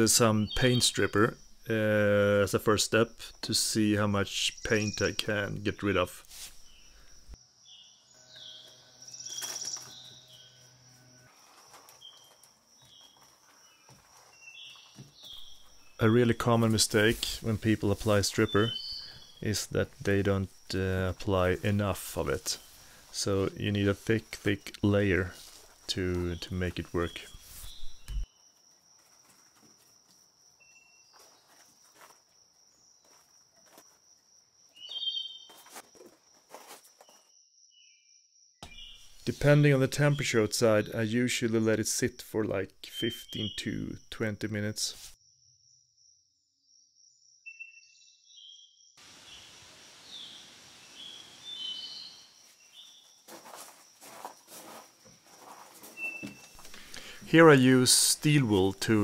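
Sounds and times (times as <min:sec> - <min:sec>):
birds chirping: 0:00.0 - 0:28.3, 0:34.8 - 0:35.6, 0:42.4 - 0:45.0, 0:48.4 - 0:53.2, 0:55.8 - 0:59.0
high-pitched insect drone: 0:07.4 - 0:13.8.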